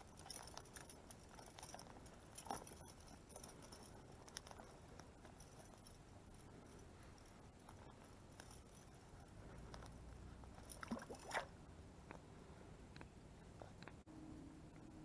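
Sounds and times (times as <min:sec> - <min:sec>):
light patter of water: 0:10.8 - 0:11.5.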